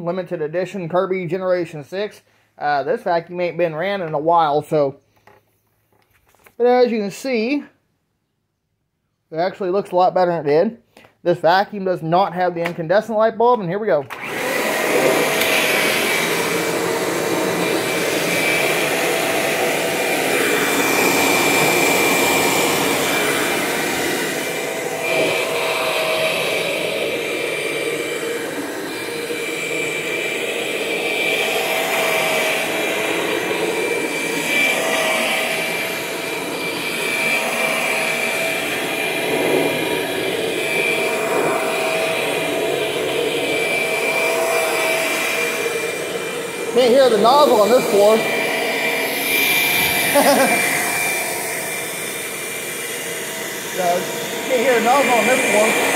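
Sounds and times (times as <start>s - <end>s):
upright vacuum cleaner whine: 14.0s - 55.9s.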